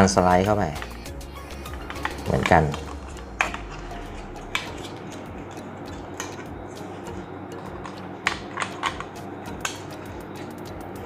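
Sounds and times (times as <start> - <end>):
plastic toy track pieces clicking: 7.8 - 9.8.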